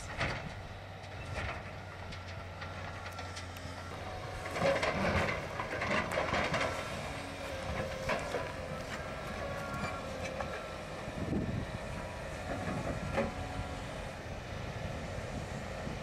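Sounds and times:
distant crane running: 0:00.0 - 0:16.0
debris clanking and scraping: 0:04.3 - 0:10.6.

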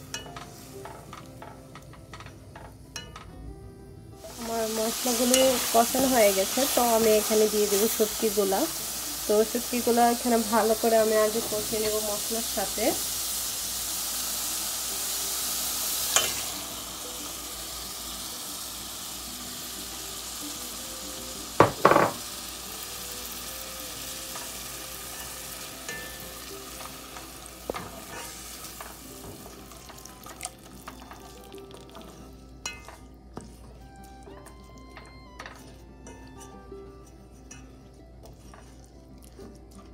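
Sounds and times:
fish sizzling in a pot: 0:00.0 - 0:03.4, 0:04.1 - 0:39.9
sharp knocks on pot: 0:21.6 - 0:22.2.

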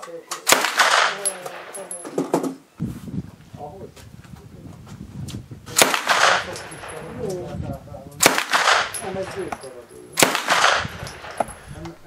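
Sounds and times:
gunshots with ringing echo: 0:00.5 - 0:02.2, 0:05.8 - 0:07.2, 0:08.2 - 0:11.8.

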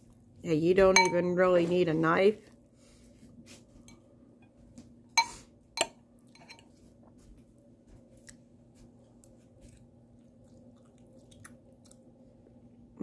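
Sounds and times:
metal fork clinking: 0:05.2 - 0:06.6
quiet chewing: 0:06.2 - 0:12.8.

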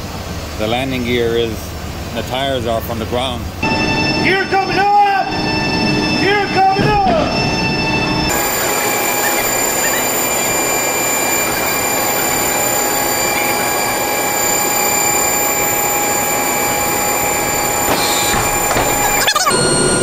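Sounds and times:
hydraulic landing gear whine: 0:00.0 - 0:20.0
rushing noise: 0:05.2 - 0:20.0.

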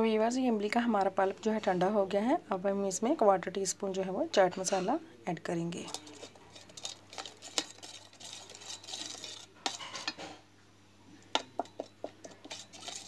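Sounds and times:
spoon scraping a metal pan: 0:05.8 - 0:10.4, 0:11.4 - 0:13.0.

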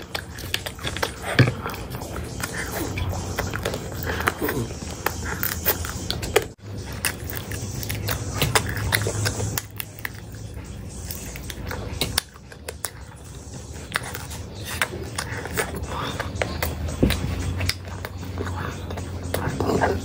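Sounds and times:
chewing and wet mouth smacks: 0:00.0 - 0:20.0.

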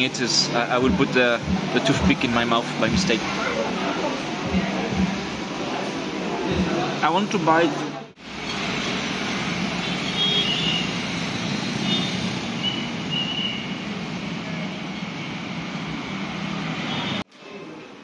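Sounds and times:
engine hum: 0:00.0 - 0:07.2
road traffic noise: 0:00.0 - 0:17.3.

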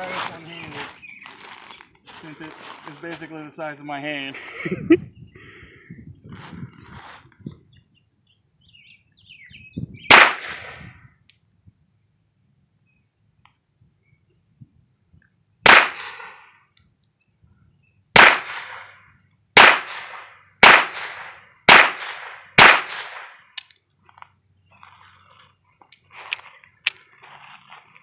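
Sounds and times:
pistol shots with short echo: 0:10.1 - 0:10.9, 0:15.6 - 0:16.4, 0:18.2 - 0:19.0, 0:19.6 - 0:23.4.

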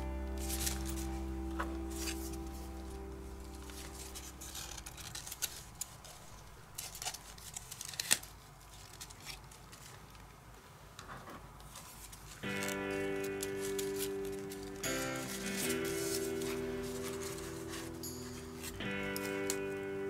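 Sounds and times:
music: 0:00.0 - 0:05.4, 0:12.4 - 0:20.0
cardstock rustling and clicking: 0:00.4 - 0:10.4, 0:11.0 - 0:19.9.

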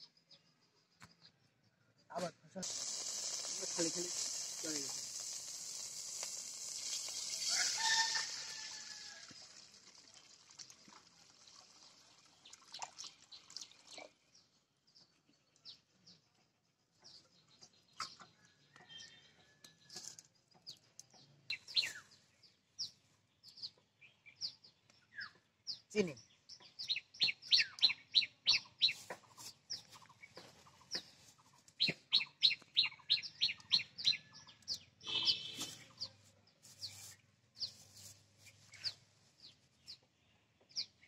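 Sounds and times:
water hissing in hot wok: 0:02.6 - 0:11.9
bird chirps: 0:15.0 - 0:41.0.

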